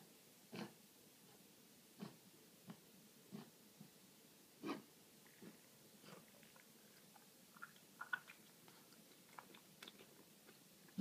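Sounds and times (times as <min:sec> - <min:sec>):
pet mouth clicks and smacks: 0:06.4 - 0:11.0.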